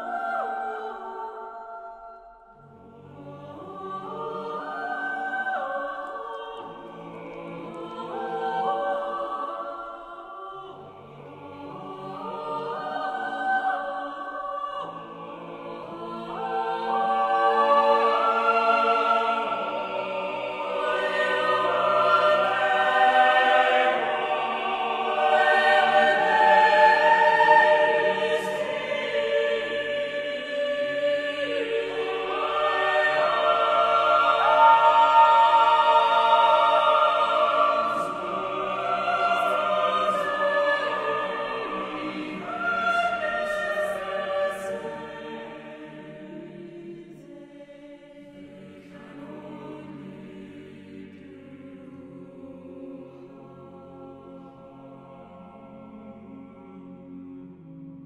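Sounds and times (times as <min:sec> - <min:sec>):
choir singing sustained chords: 0:00.0 - 0:58.0.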